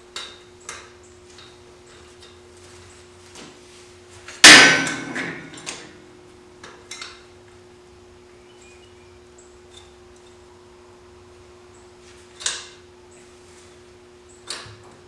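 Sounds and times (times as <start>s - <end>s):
loud metallic clang: 4.4s - 5.7s.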